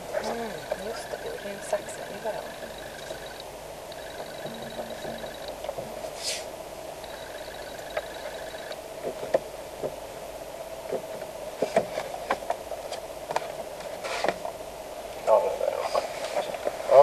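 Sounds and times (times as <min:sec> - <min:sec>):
car engine idling: 0:00.0 - 0:09.9.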